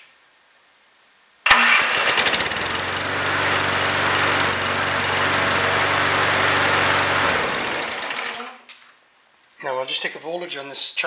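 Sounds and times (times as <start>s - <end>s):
lawn mower engine running: 1.5s - 8.6s.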